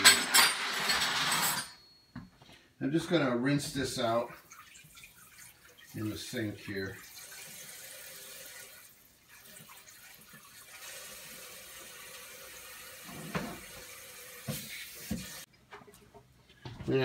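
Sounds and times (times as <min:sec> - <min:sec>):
faucet water running: 0:03.7 - 0:15.5.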